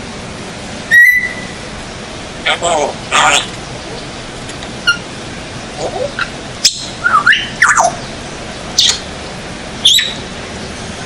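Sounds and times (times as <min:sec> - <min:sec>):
parrot whistles and squawks: 0:00.9 - 0:01.6, 0:04.8 - 0:05.0, 0:05.8 - 0:07.9, 0:08.8 - 0:09.0, 0:09.8 - 0:10.2.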